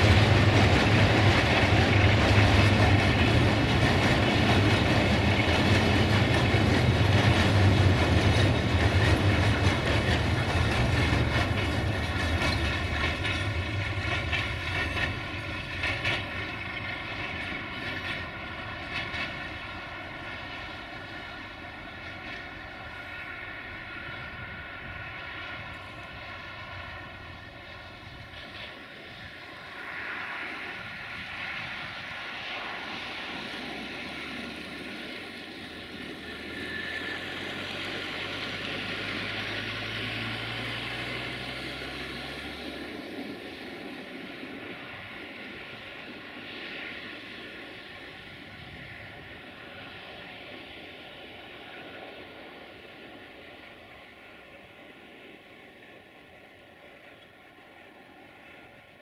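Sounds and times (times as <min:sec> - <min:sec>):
train wagons clicking over rail joints: 0:00.0 - 0:21.4
distant diesel locomotive drone: 0:00.0 - 0:59.0.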